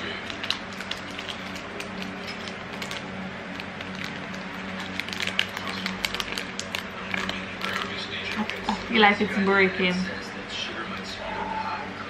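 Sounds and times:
plastic wrapper crinkling: 0.0 - 9.0
steady low hum: 0.0 - 12.0.

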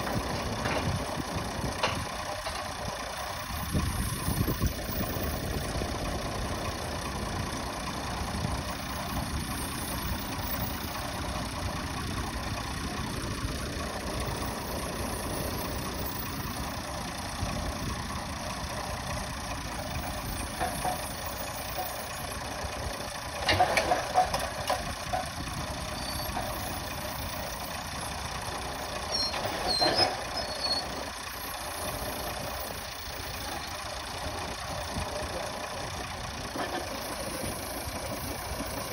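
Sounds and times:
rig clattering: 0.0 - 6.2, 19.7 - 38.9
diesel engine running: 0.0 - 38.9.

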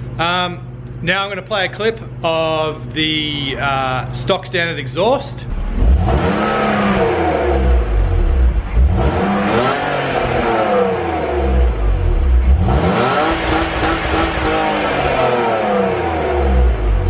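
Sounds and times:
car engine revving: 5.4 - 17.0.

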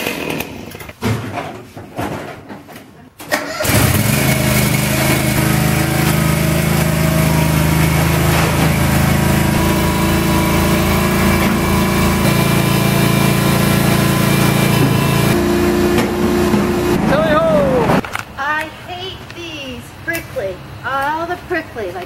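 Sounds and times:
garden tractor engine running: 3.3 - 18.6.

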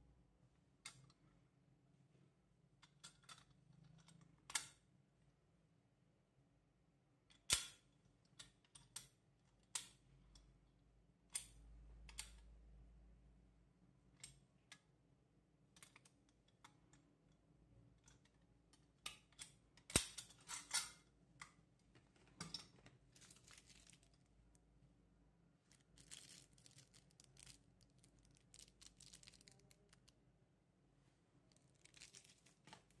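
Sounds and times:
plastic bag rustling: 23.1 - 24.2, 25.7 - 30.1, 31.5 - 33.0.

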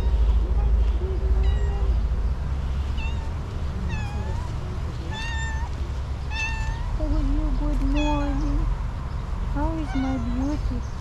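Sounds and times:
cat meowing: 1.3 - 2.0, 2.9 - 4.5, 5.1 - 7.0, 9.8 - 10.4.

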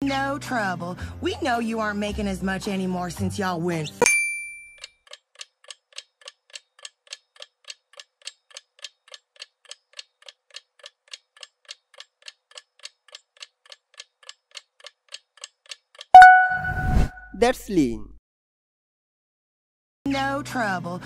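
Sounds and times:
clock-like timer ticks: 4.8 - 16.3.

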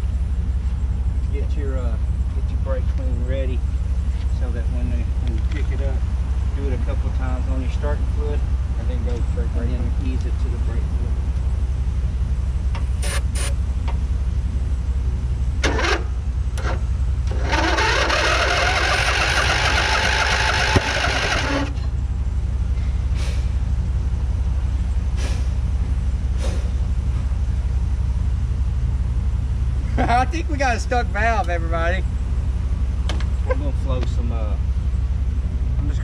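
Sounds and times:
low engine hum: 0.0 - 36.0
mower engine running loudly: 15.6 - 21.9.

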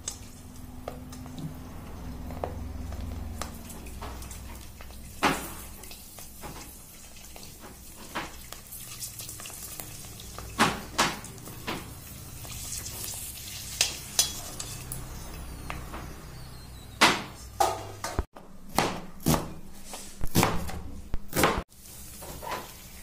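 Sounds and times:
frying in hot oil sizzle: 0.0 - 18.3, 21.7 - 23.0
metal spoon clinking on pan: 13.8 - 15.1.

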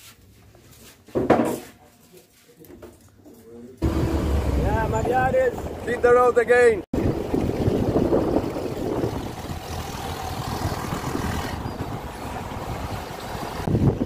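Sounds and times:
vehicle engine and tyre noise: 3.8 - 14.0
wind rushing over microphone: 7.0 - 14.0.

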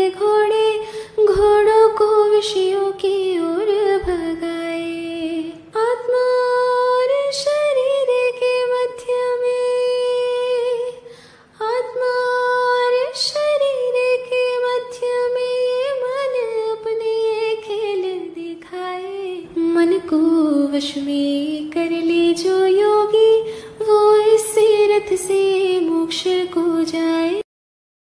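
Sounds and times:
woman singing devotional song: 0.0 - 27.4.

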